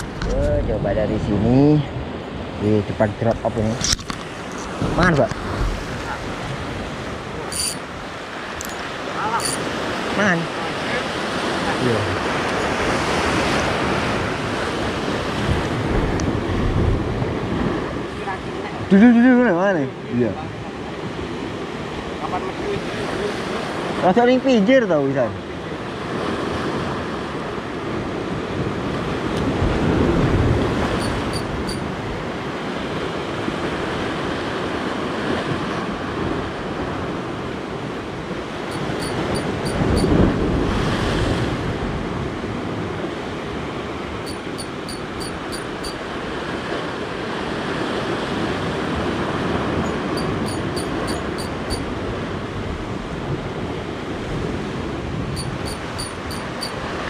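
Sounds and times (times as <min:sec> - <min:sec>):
wind on microphone: 0:00.0 - 0:19.0, 0:25.8 - 0:57.0
surf breaking on rocky shore: 0:01.9 - 0:19.4
faint high chirps: 0:31.0 - 0:31.8, 0:38.7 - 0:40.1, 0:44.3 - 0:46.0, 0:50.2 - 0:51.8, 0:55.4 - 0:56.8.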